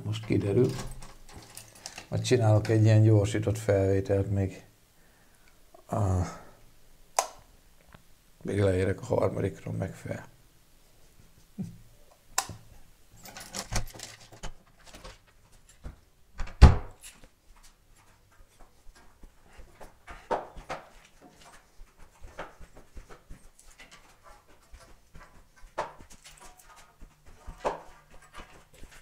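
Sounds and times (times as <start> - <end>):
clatter and knocks: 13.2 - 15.3
sandals slapping on stone stairs: 18.6 - 29.0.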